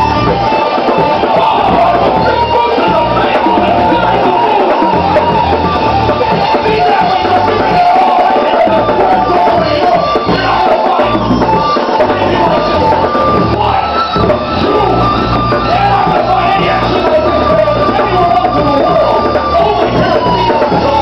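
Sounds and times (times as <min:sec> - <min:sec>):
loud rock music with singing: 0:00.0 - 0:21.0
pulsing bass: 0:00.0 - 0:21.0.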